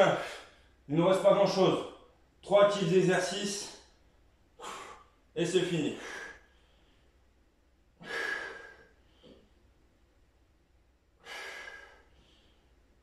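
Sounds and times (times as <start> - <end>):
man breathing out hard: 4.6 - 5.2, 5.9 - 7.1, 8.0 - 9.4, 11.2 - 12.7.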